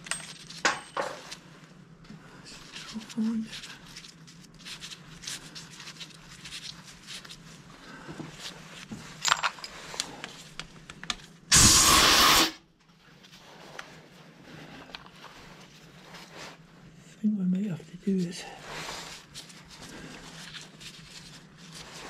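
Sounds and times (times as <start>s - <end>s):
metal tools clinking and scraping: 0.0s - 1.4s, 9.2s - 10.0s
loud hiss: 11.5s - 12.6s.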